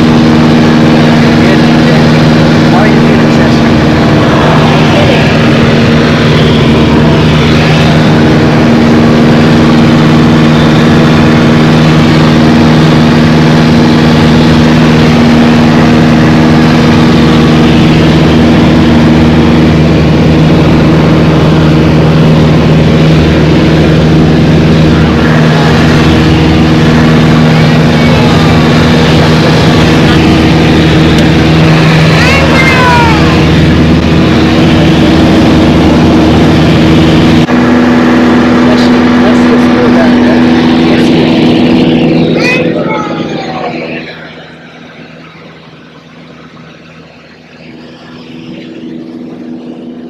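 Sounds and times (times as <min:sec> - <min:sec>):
light aircraft engine drone: 0:00.0 - 0:50.0.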